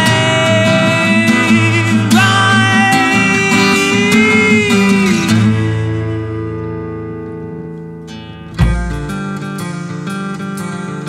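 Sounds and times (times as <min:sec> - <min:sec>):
acoustic guitar: 0:00.0 - 0:11.0
electric bass: 0:07.5 - 0:09.4.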